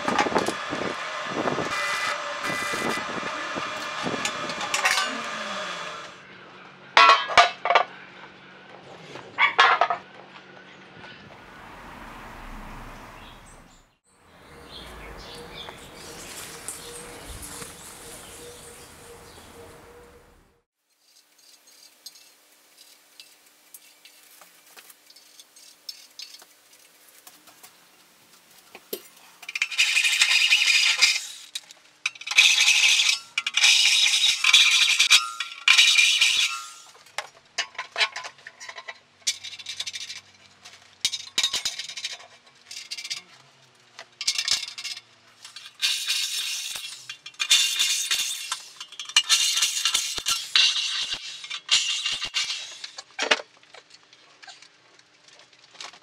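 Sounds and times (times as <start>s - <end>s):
cordless drill boring through steel: 0.0s - 6.2s
metallic clinks and rattles: 44.2s - 53.0s.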